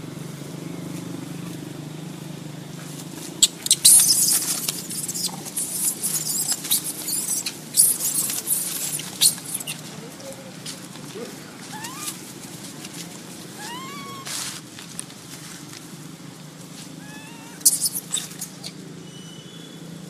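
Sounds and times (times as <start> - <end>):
monkeys scuffling in dry leaves: 2.8 - 18.9.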